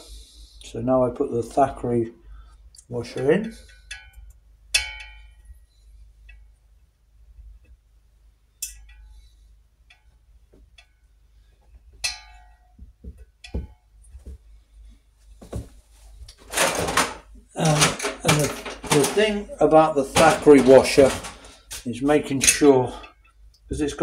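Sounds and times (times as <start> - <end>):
small metal parts clinking: 16.5 - 19.5, 20.1 - 21.8.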